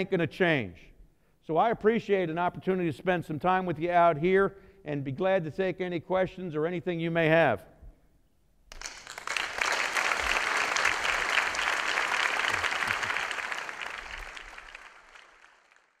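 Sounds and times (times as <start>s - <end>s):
audience applauding: 8.7s - 16.0s.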